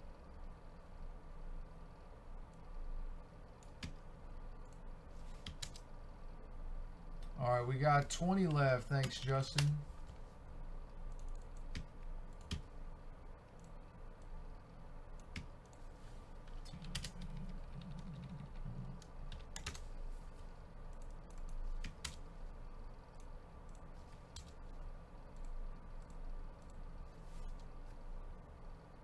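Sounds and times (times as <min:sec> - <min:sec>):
faint steady hum: 0:00.0 - 0:29.0
computer keyboard typing: 0:03.6 - 0:04.0, 0:04.6 - 0:05.9, 0:11.0 - 0:12.7, 0:15.2 - 0:15.8, 0:16.4 - 0:19.9, 0:20.9 - 0:22.3, 0:23.1 - 0:24.6.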